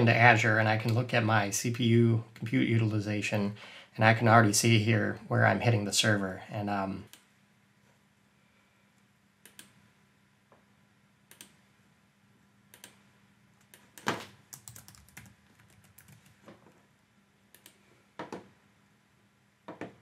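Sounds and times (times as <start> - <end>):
computer keyboard typing: 13.6 - 16.4.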